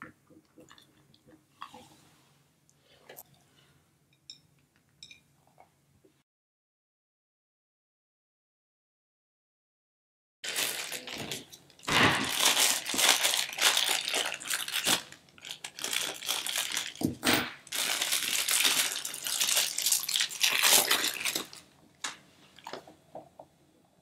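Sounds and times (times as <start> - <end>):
plastic bag crinkling: 10.4 - 21.7.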